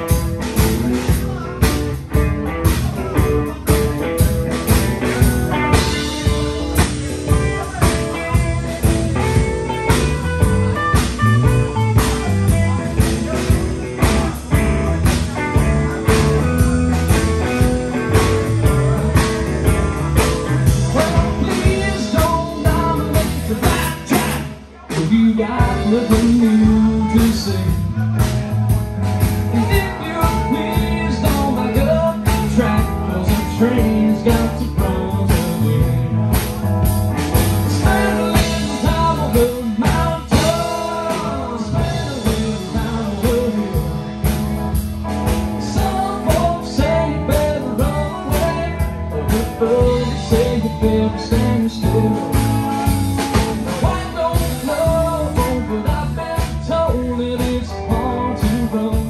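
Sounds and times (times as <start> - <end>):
drum kit beat: 0.0 - 59.0
electric bass: 0.0 - 59.0
electric guitars: 0.0 - 59.0.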